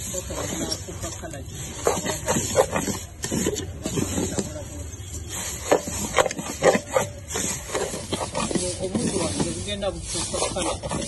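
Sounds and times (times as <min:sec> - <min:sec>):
wooden spatula scraping pot: 0:00.0 - 0:11.0.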